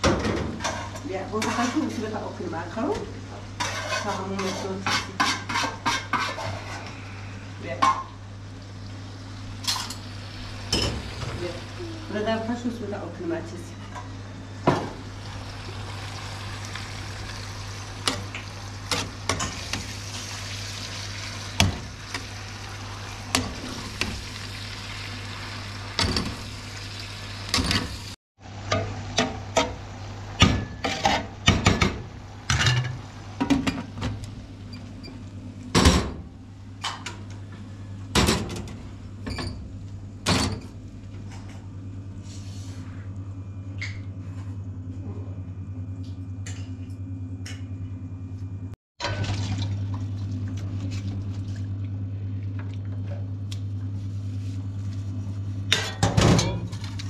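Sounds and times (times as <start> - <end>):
food sizzling in a pan: 14.9 - 28.2.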